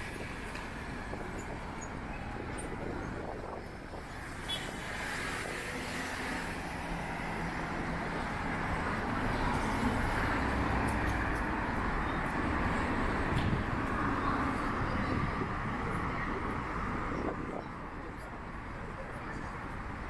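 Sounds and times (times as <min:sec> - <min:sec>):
road traffic noise: 0:00.0 - 0:20.0.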